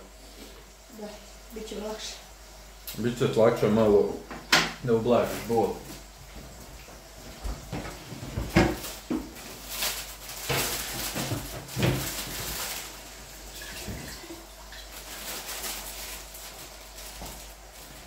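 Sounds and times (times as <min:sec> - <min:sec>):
kitchen knocks and clatters: 0:04.3 - 0:04.8, 0:06.3 - 0:12.9, 0:13.5 - 0:14.9.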